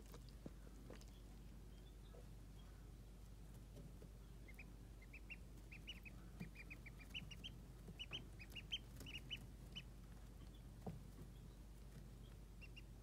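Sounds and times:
ducklings peeping: 0:00.0 - 0:13.0.

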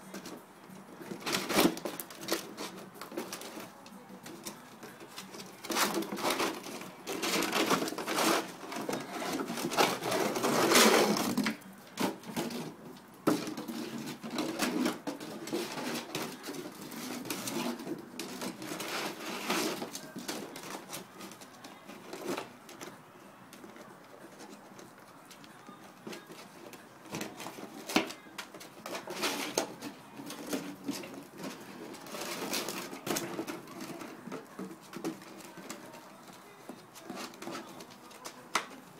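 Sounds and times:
plastic jug scraping on concrete: 0:01.0 - 0:03.7, 0:04.3 - 0:22.9, 0:26.0 - 0:38.8.

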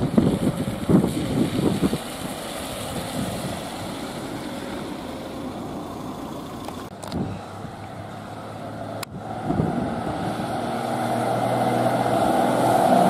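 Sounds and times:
wind buffeting microphone: 0:00.0 - 0:05.0, 0:09.0 - 0:11.5
fire engine diesel engines running: 0:00.0 - 0:13.0.

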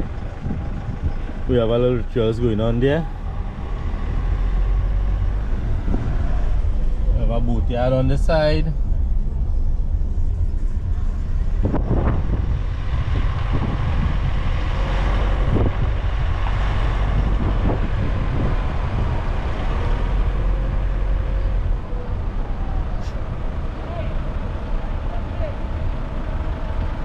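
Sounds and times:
vehicle engine and road noise: 0:00.0 - 0:27.0.

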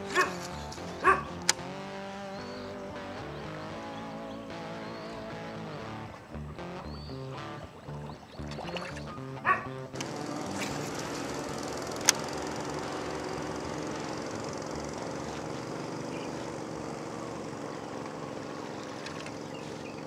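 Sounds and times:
small engine running: 0:00.0 - 0:20.0
sharp click: 0:00.1 - 0:01.7, 0:11.9 - 0:12.4.

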